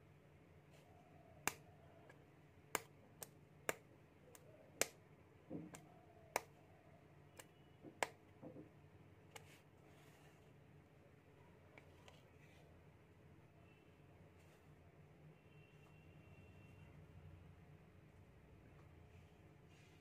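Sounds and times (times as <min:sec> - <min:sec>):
soft handling rustle: 0:09.3 - 0:10.8, 0:11.6 - 0:12.9.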